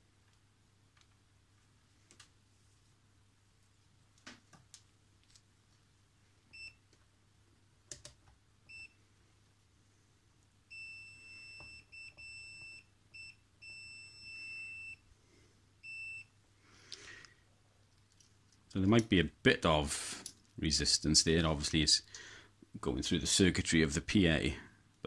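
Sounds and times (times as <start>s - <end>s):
multimeter continuity beeps: 8.7s - 9.0s, 10.7s - 15.0s, 15.8s - 16.3s.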